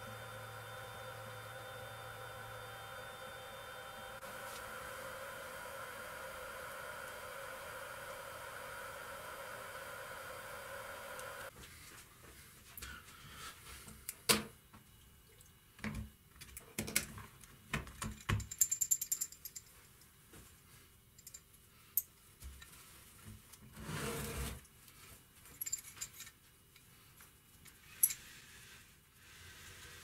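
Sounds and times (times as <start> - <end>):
small metal parts clicking: 17.9 - 19.7, 25.5 - 26.4.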